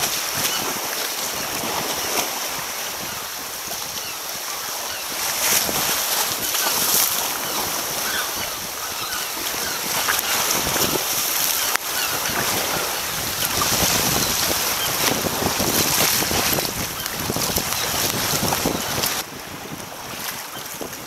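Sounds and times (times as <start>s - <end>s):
water sloshing around kayak: 0.0s - 21.0s
waves washing against rocks: 0.0s - 21.0s
wind buffeting microphone: 5.1s - 21.0s.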